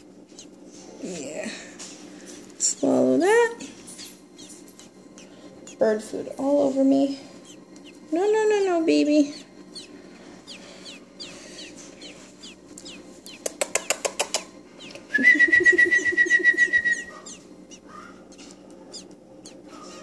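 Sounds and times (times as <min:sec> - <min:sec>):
nestling birds begging chirps: 0:00.0 - 0:01.4, 0:02.2 - 0:20.0
rapidly pulsing high peep: 0:07.2 - 0:14.1
sharp clicks: 0:12.7 - 0:15.0.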